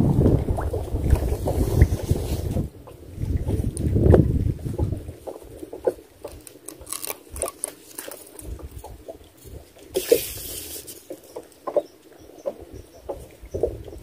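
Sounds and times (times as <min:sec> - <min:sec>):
water lapping against a boat: 0:00.0 - 0:14.0
short hiss: 0:10.0 - 0:11.0.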